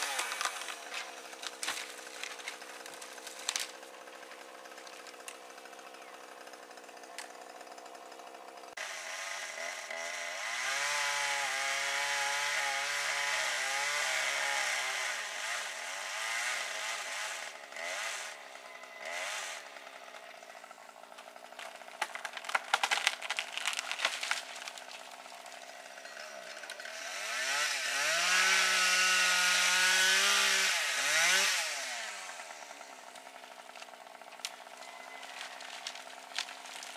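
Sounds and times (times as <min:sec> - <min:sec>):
wood cracking: 0:00.0 - 0:08.7, 0:19.9 - 0:36.9
chainsaw revving and cutting: 0:00.0 - 0:36.9.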